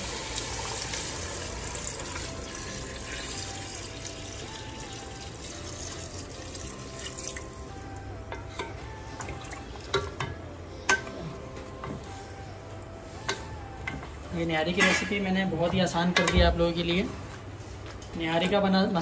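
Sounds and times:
water pouring into a metal pot: 0:00.0 - 0:07.6.

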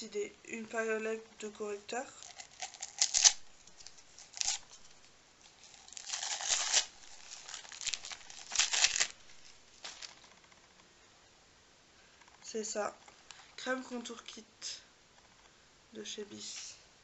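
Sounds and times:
wrapping paper tearing and crinkling: 0:02.1 - 0:10.4.

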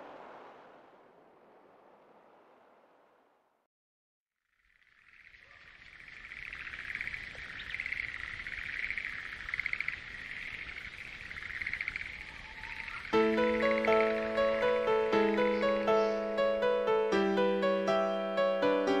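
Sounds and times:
frogs calling in pulsing trills: 0:04.4 - 0:16.4.

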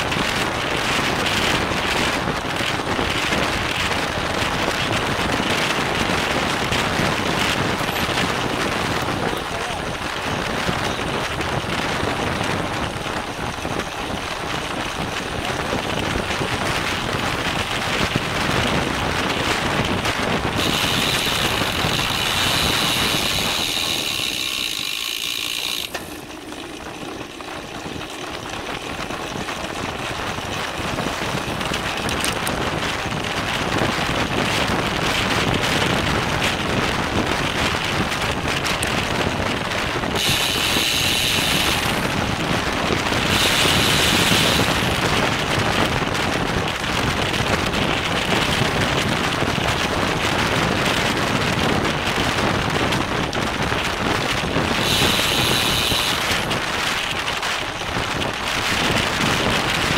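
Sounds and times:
bicycle tyre and road noise: 0:00.0 - 0:59.9
wind rushing over microphone: 0:00.0 - 0:59.9
high steady buzz: 0:20.5 - 0:26.5, 0:40.1 - 0:42.4, 0:43.0 - 0:45.2, 0:54.6 - 0:56.7.

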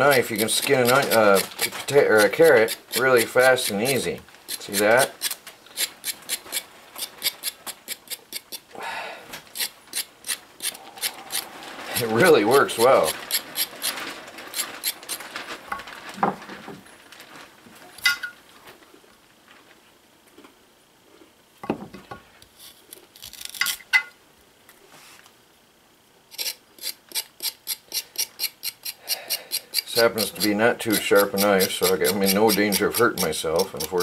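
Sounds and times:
knife scraping carrot skin: 0:00.1 - 0:08.6, 0:09.5 - 0:15.2, 0:22.6 - 0:23.8, 0:26.3 - 0:34.0.

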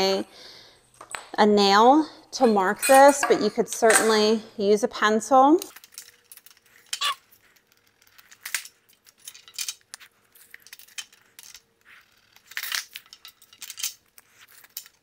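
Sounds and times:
metal strapping clinking and scraping: 0:02.3 - 0:04.4, 0:05.6 - 0:15.0.

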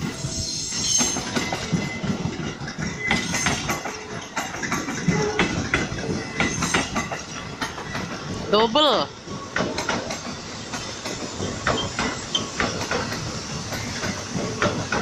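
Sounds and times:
high-pitched wheel squeals: 0:00.0 - 0:02.2
electric train passing: 0:00.0 - 0:15.0
wheels clacking over rail joints: 0:01.0 - 0:15.0.

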